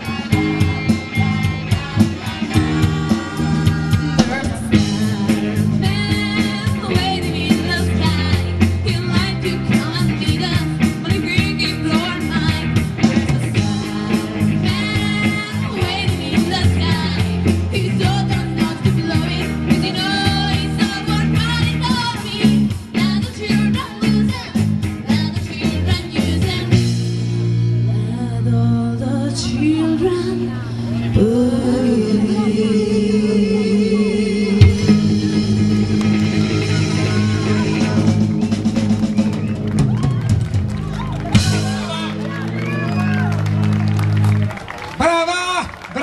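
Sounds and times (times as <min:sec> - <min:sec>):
woman singing with vibrato: 0:00.0 - 0:12.8, 0:13.5 - 0:27.0, 0:27.9 - 0:38.2
drum kit beat: 0:00.0 - 0:27.7, 0:34.5 - 0:42.8
electric guitar: 0:00.0 - 0:45.0.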